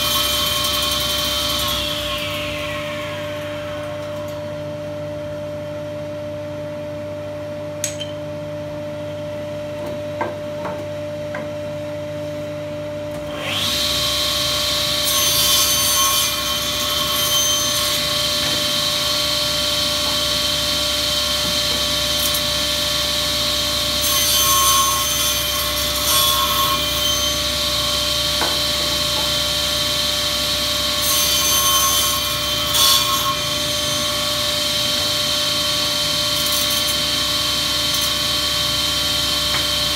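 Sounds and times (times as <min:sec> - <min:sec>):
saw blade cutting boards: 0:00.0 - 0:05.0, 0:13.3 - 0:39.9
saw motor whine: 0:00.0 - 0:05.5
machine hum: 0:00.2 - 0:10.2.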